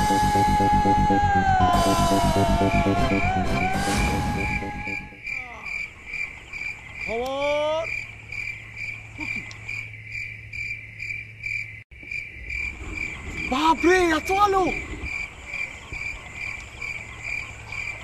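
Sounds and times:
music: 0:00.0 - 0:05.2
short rising call: 0:00.0 - 0:05.2
crickets chirping: 0:03.8 - 0:18.0.

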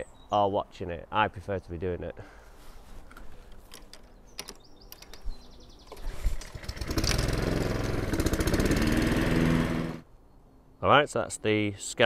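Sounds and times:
lawn mower engine running: 0:06.0 - 0:10.0.

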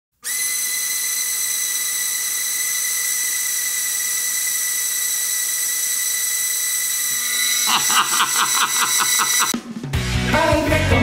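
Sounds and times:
toy rotor whirring: 0:00.2 - 0:09.5.

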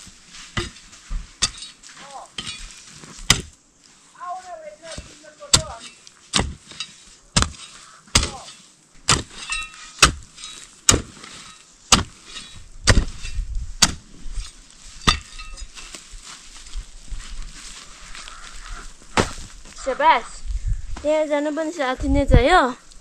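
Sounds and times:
hoe chopping into soil: 0:00.4 - 0:03.6, 0:04.8 - 0:16.0, 0:19.1 - 0:19.5.

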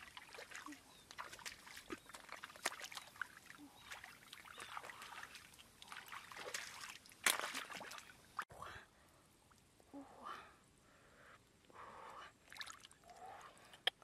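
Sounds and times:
hands splashing in muddy water: 0:00.0 - 0:08.2.

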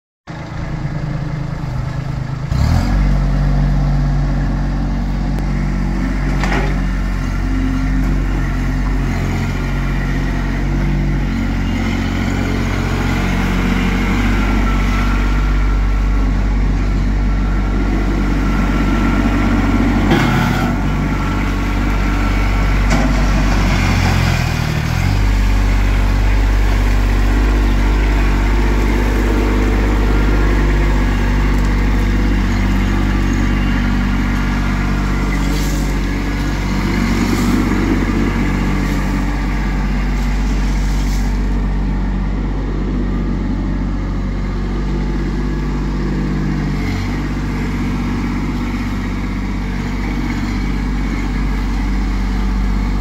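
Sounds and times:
tractor diesel engine running: 0:00.3 - 0:53.0.

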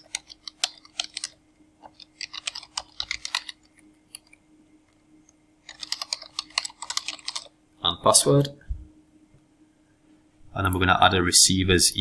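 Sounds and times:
keyboard typing: 0:00.0 - 0:05.0, 0:05.6 - 0:07.6.

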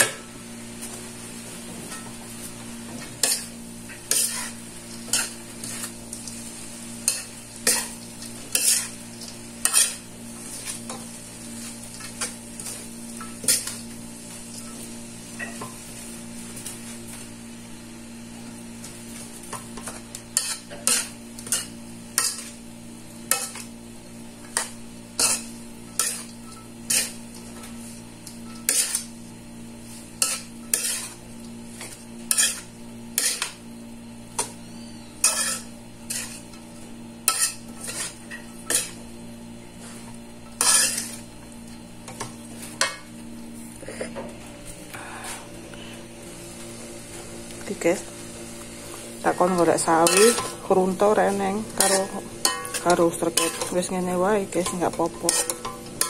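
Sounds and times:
steady low hum: 0:00.0 - 0:56.0
utensil scraping frying pan: 0:03.0 - 0:15.8, 0:19.2 - 0:23.7, 0:24.4 - 0:29.2, 0:29.8 - 0:33.6, 0:34.4 - 0:39.0, 0:39.7 - 0:41.3, 0:48.8 - 0:56.0.

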